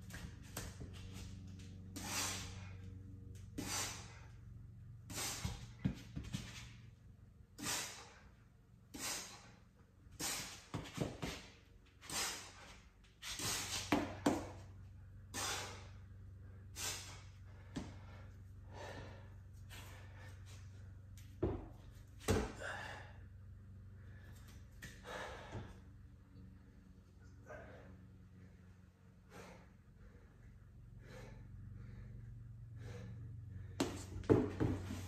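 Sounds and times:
man breathing heavily: 0.0 - 35.0
steady low hum: 0.0 - 35.0
shoes knocking on wall and floor: 21.4 - 22.6, 33.8 - 35.0.

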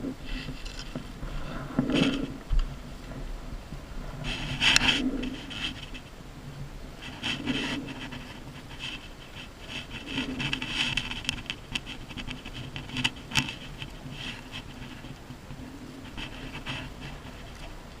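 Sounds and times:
leather glove rubbing and rustling: 7.0 - 18.0.

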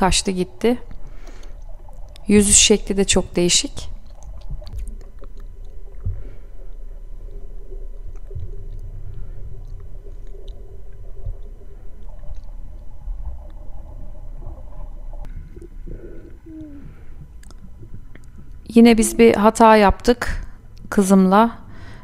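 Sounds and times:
water gurgling: 0.0 - 20.1
underwater rumble: 0.5 - 19.6
faint wavering tones: 5.6 - 19.7.

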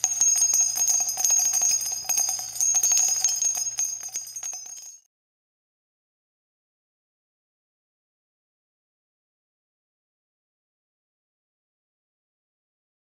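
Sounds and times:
bells jingling: 0.0 - 5.1.

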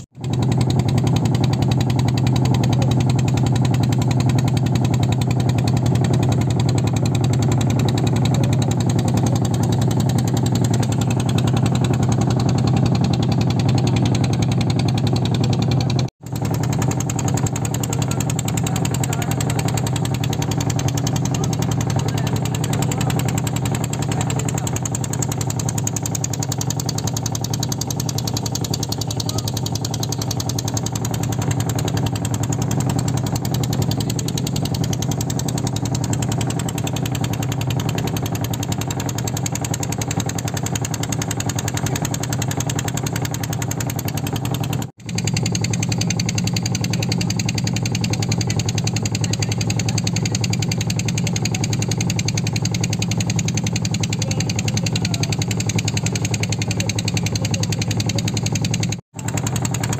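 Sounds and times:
boat motor running: 0.0 - 59.9.

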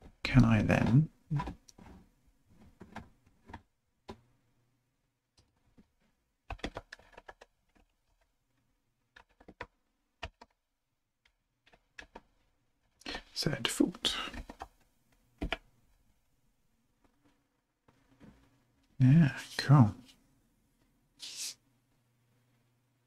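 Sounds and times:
computer keyboard typing: 6.5 - 8.2, 9.1 - 10.6, 11.7 - 12.2.

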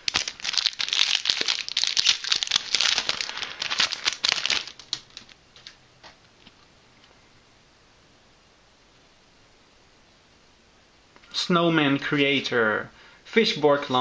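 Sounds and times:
foil wrapper crinkling: 0.0 - 5.8.

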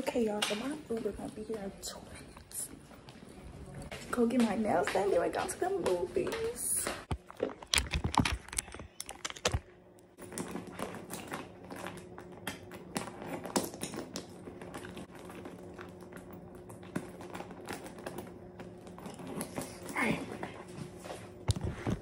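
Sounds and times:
small items rattling in backpack: 7.2 - 12.0.

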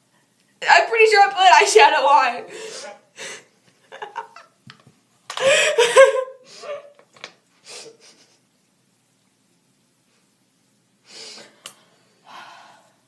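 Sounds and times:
person giggling: 5.3 - 7.0.

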